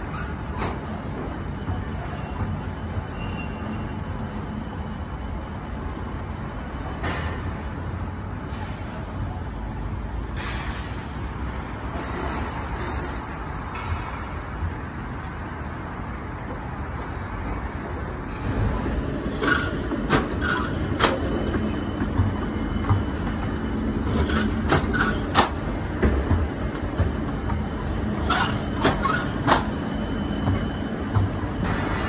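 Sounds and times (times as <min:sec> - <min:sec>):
tram rumbling past: 0:00.0 - 0:32.0
wheels clacking on track: 0:16.5 - 0:32.0.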